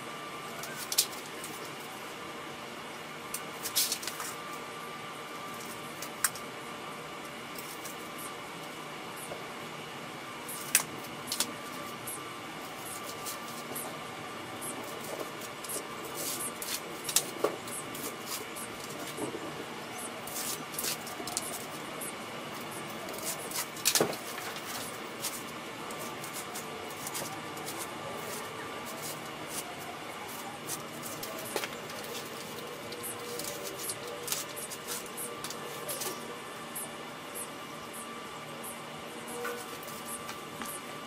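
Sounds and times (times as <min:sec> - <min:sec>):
faint background hum: 0:00.0 - 0:41.0
cardboard scraping and rustling: 0:23.0 - 0:36.2.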